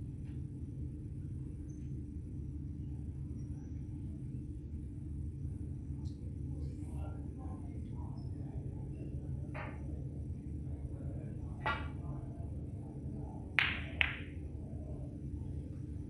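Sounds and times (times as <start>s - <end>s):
low steady hall hum: 0.0s - 16.0s
cue striking ball: 9.6s - 9.8s, 11.6s - 12.0s, 13.6s - 14.4s
snooker balls clacking: 13.6s - 14.4s.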